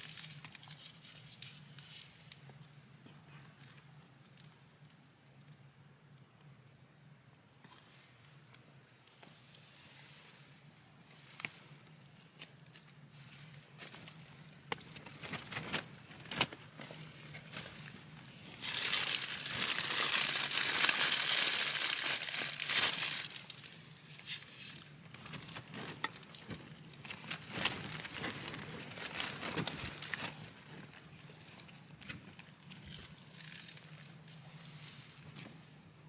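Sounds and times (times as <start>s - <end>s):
plastic bag crinkling: 0.0s - 2.0s, 13.8s - 34.4s.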